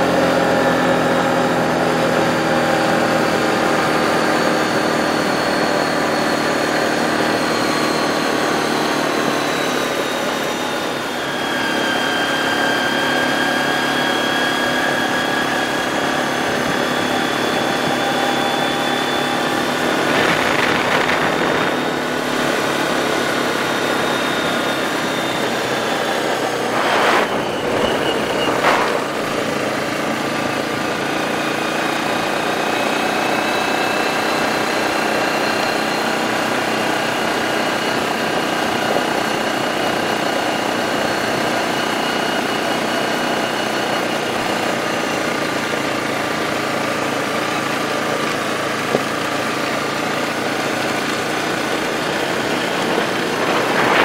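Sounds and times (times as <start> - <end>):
atv engine running: 17.4 - 23.7, 45.2 - 54.0
short bursts of rushing noise: 26.1 - 30.4.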